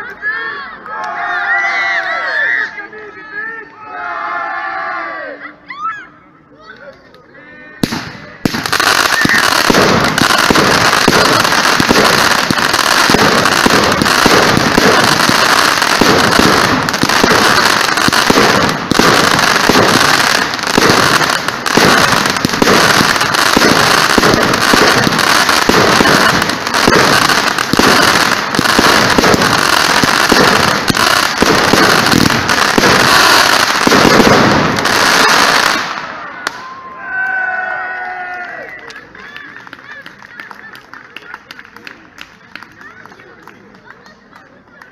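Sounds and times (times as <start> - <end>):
crackling comets bursting: 7.8 - 36.6
fireworks crackling pops and bangs: 7.8 - 36.7.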